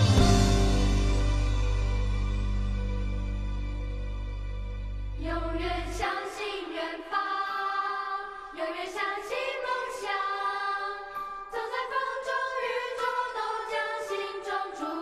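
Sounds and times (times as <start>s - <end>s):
instrumental backing: 0.0s - 5.2s.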